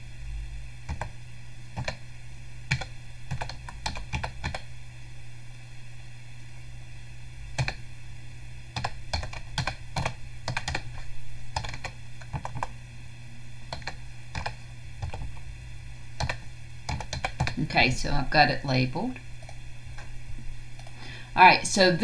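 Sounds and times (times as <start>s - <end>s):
steady low hum: 0.0s - 22.0s
computer keyboard typing: 0.9s - 1.2s, 1.8s - 2.0s, 2.7s - 4.7s, 7.6s - 7.8s, 8.8s - 12.7s, 13.7s - 15.3s, 16.2s - 17.6s.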